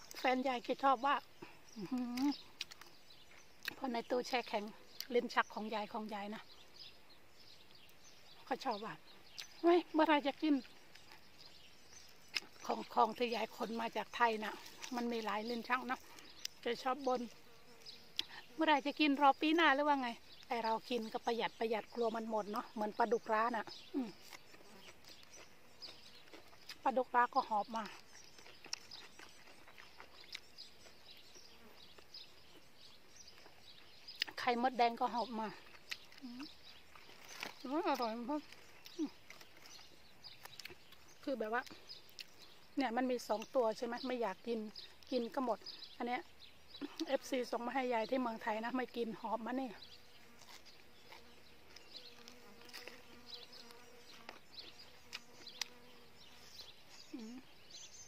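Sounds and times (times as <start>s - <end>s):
outdoor garden ambience: 0.0s - 58.0s
soft chewing clicks: 1.3s - 5.7s, 7.5s - 9.6s, 10.3s - 18.5s, 21.8s - 34.6s, 35.2s - 43.8s, 48.9s - 57.8s
insect buzzing: 6.4s - 42.8s, 45.6s - 58.0s
faint bird chirps: 53.1s - 58.0s.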